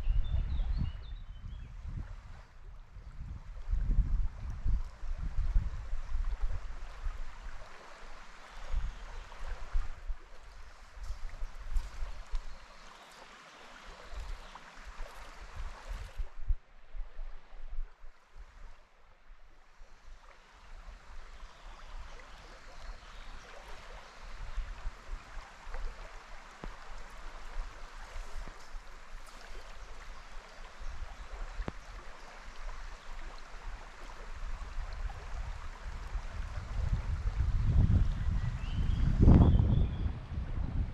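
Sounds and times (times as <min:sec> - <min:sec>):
river water rushing: 0:07.2 - 0:16.2
faint sharp clicks: 0:12.2 - 0:12.5, 0:31.6 - 0:31.8.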